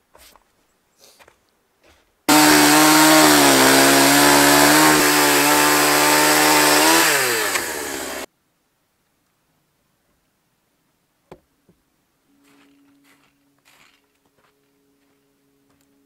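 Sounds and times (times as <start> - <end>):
chainsaw cutting timber: 2.3 - 8.3.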